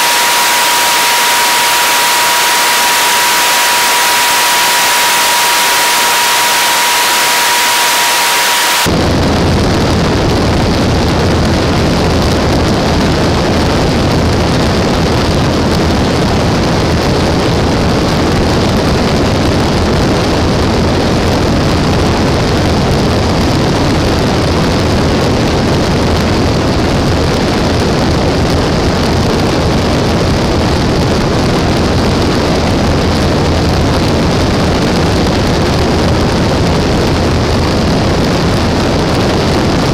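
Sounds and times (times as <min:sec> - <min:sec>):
steady high tone: 0:00.0 - 0:09.0
light aircraft propeller and engine: 0:00.0 - 0:39.9.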